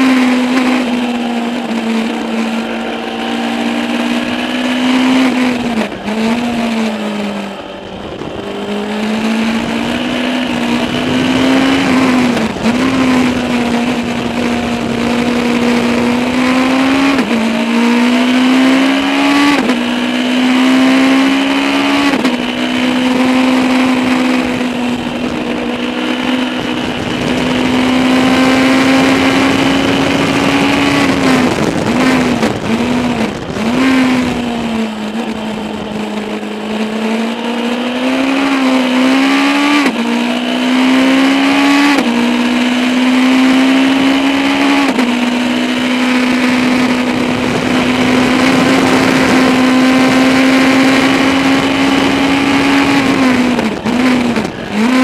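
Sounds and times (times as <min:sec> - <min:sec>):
race car engine at high revs: 0:00.0 - 0:55.0
sharp gear upshifts: 0:00.0 - 0:55.0.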